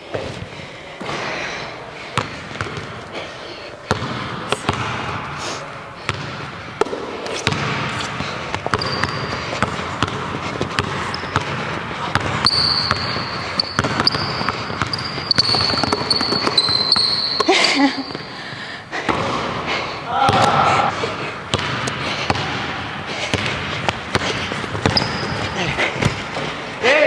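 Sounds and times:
basketball bouncing on wooden floor: 3.9s - 5.1s, 6.1s - 18.2s, 21.5s - 22.6s, 23.2s - 26.5s
sneaker squeaks: 7.3s - 18.4s, 23.3s - 26.6s.

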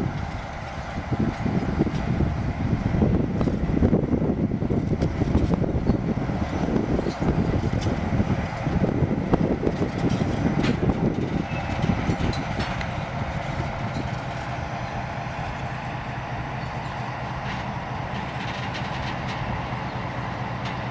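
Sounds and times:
diesel locomotive engine running: 0.0s - 20.9s
train wheels clicking: 9.5s - 20.9s.

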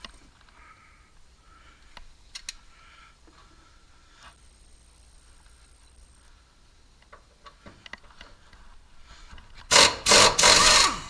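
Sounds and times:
impact wrench hammering: 9.7s - 11.0s.

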